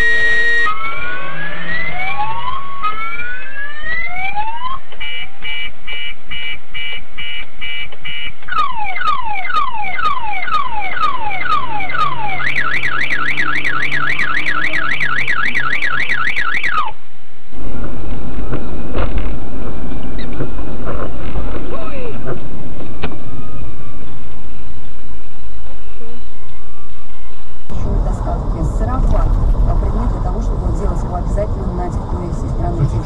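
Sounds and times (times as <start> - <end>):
car alarm siren: 0.0 - 17.0.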